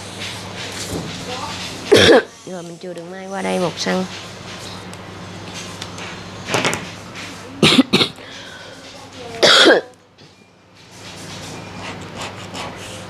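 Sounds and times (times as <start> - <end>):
person coughing: 1.9 - 2.3, 7.6 - 8.2, 9.4 - 9.9.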